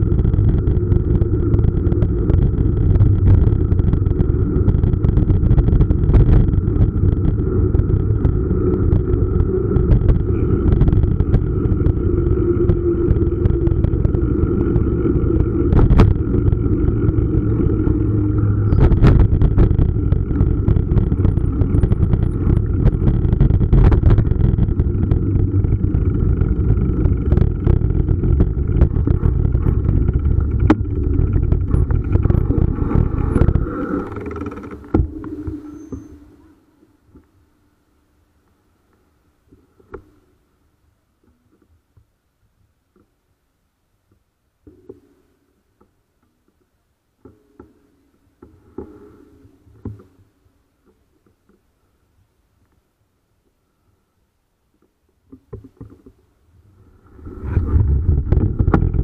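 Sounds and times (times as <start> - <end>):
wind rushing over microphone: 0.0 - 36.5, 56.6 - 59.0
tyre and road rumble: 0.0 - 37.4, 55.2 - 59.0
sharp knocks and rattles: 15.2 - 36.1.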